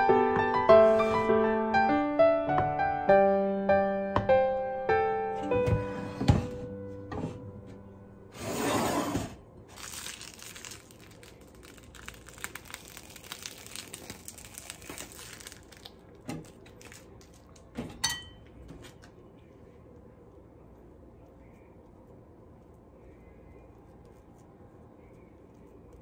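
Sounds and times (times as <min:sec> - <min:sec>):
plastic piping bag crinkling: 0:09.6 - 0:17.8.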